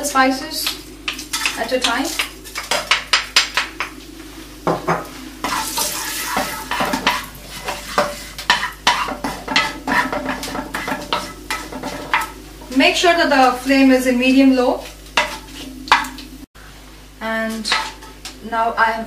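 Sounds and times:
spices sizzling in hot oil: 0.0 - 18.4
wooden spatula scraping a pan: 1.1 - 3.0, 4.4 - 12.9, 14.4 - 16.2, 17.5 - 18.2.

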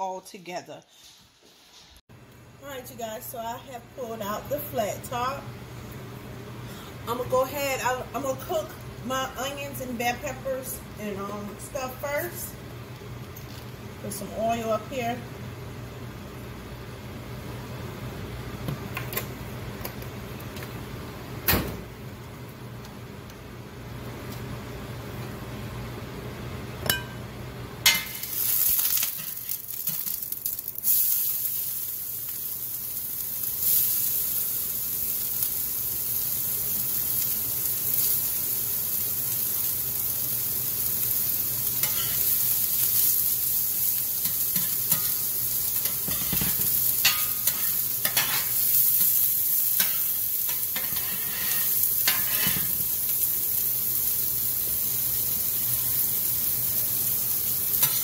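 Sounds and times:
vegetables sizzling on griddle: 27.8 - 58.0
spatula scraping griddle: 41.8 - 42.2, 45.8 - 48.6, 49.8 - 52.8.

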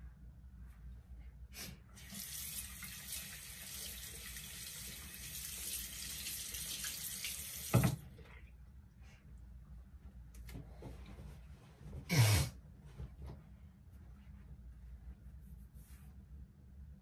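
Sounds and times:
water running into basin: 2.0 - 8.5.

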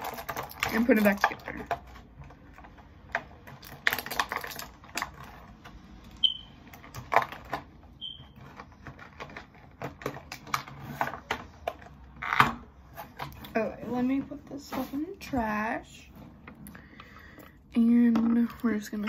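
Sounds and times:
plastic clicks and rustles: 0.0 - 13.6
high squeaks: 8.0 - 8.4.

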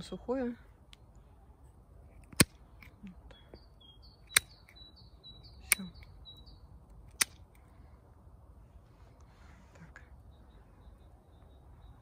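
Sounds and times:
small bird chirping: 2.7 - 7.7, 9.8 - 12.0
pruning shears snipping twigs: 5.6 - 6.1, 7.1 - 7.6.

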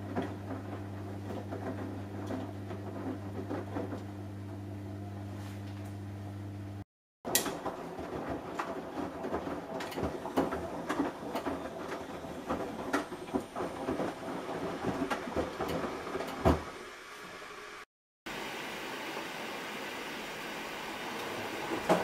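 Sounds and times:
washing machine drum tumbling: 0.0 - 4.5, 7.2 - 16.8, 21.2 - 22.0
laundry knocks and thuds: 7.5 - 16.8.

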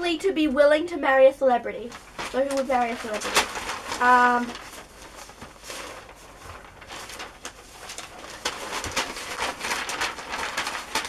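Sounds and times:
paper rustling: 1.8 - 11.0.

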